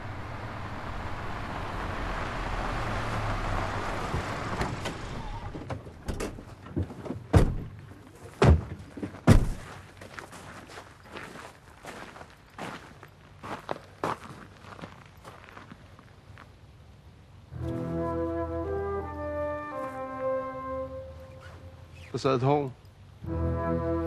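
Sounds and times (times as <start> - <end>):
car rolling on gravel: 0.0 - 16.5
car doors slamming: 7.3 - 7.8, 8.4 - 9.7.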